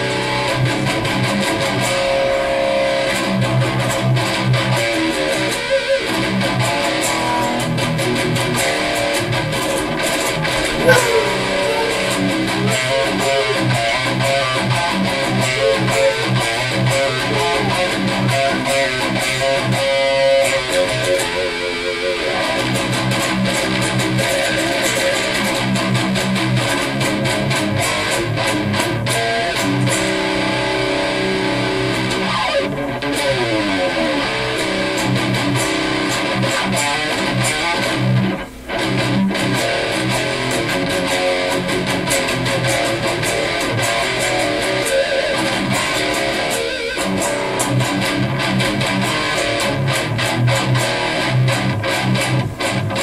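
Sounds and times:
loud electric guitar riffing: 0:07.2 - 0:20.7.

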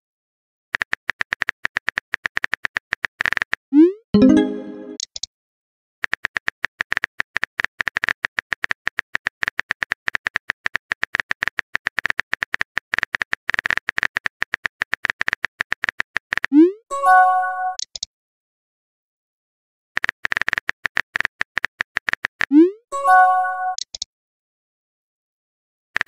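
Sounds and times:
phone keyboard typing clicks: 0:23.7 - 0:24.1.

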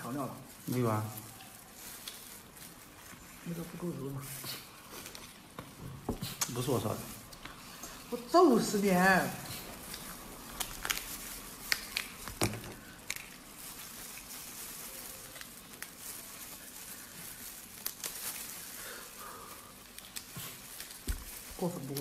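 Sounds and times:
plastic gloves crinkling: 0:00.0 - 0:22.0
crayfish shells cracking: 0:09.8 - 0:22.0.

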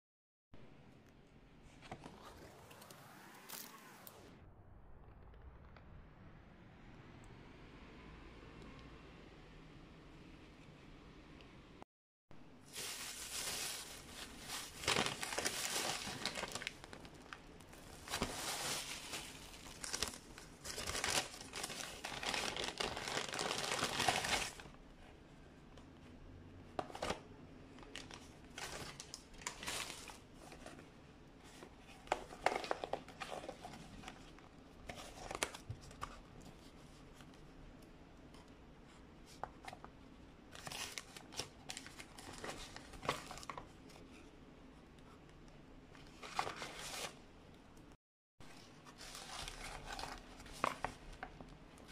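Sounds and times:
paper and cardboard rustling: 0:12.6 - 0:24.7, 0:27.8 - 0:30.8, 0:31.4 - 0:37.3, 0:48.5 - 0:51.9
plastic bag crinkling: 0:12.6 - 0:24.7.

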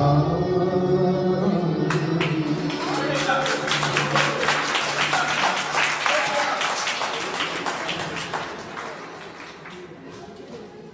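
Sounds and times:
audience applause: 0:02.2 - 0:10.3.

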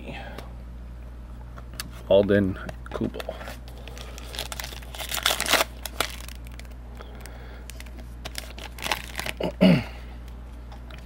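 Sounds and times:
plastic wrapper tearing and crinkling: 0:03.5 - 0:09.6.

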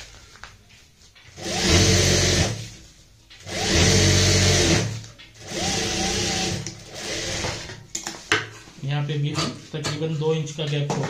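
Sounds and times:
sewing machine motor whirring: 0:01.3 - 0:02.7, 0:03.4 - 0:07.8
sewing machine stitching fabric: 0:01.3 - 0:02.8, 0:03.4 - 0:07.8.

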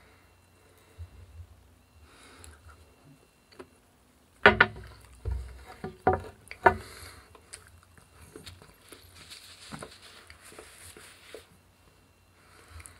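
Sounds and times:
objects knocking on a table: 0:04.4 - 0:06.8.

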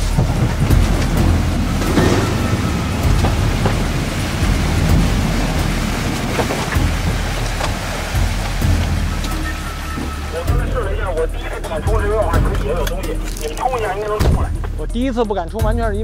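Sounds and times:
sharp knocks: 0:00.0 - 0:10.2
water splashing: 0:00.0 - 0:15.0
low engine rumble: 0:00.0 - 0:16.0.

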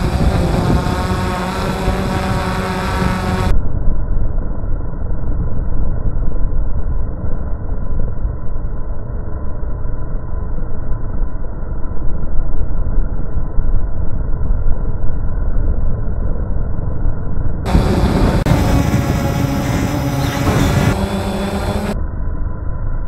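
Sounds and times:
wind buffeting: 0:00.0 - 0:03.5, 0:17.7 - 0:22.0
drone motors and propellers: 0:00.0 - 0:23.0.

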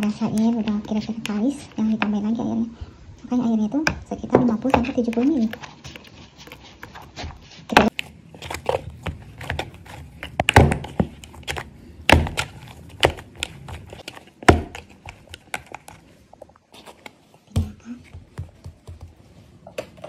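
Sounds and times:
dough scrunching in a bowl: 0:03.5 - 0:19.7.

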